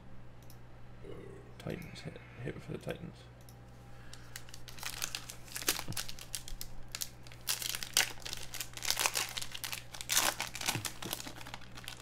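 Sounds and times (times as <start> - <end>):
card pack wrapper crinkling: 4.1 - 12.0.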